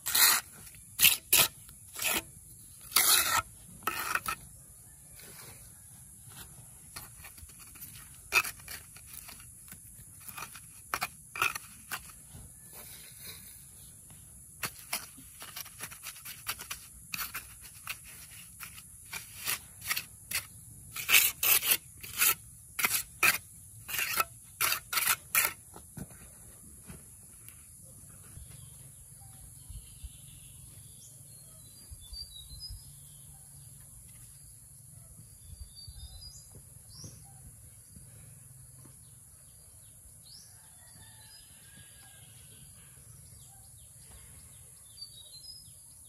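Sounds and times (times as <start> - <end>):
hand tool scraping: 0.0 - 4.6, 6.3 - 26.2.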